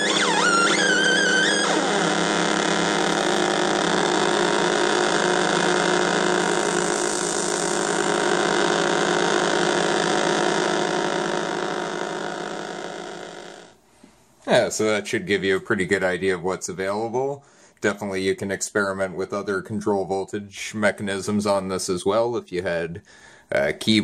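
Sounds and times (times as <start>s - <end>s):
buzzing synthesizer drone: 0.0s - 13.8s
high sliding tone: 0.0s - 13.8s.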